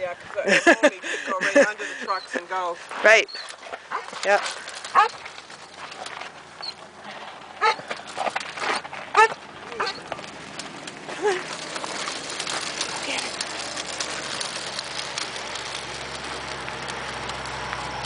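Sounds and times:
wheels rolling on gravel: 0.0s - 18.0s
dog yipping: 4.9s - 5.2s, 7.6s - 7.8s, 9.2s - 10.1s.

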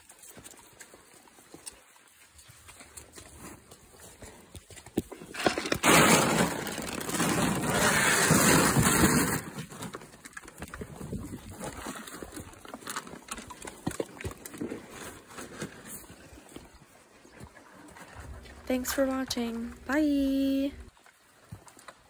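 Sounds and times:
horses crunching grain: 0.0s - 22.0s.

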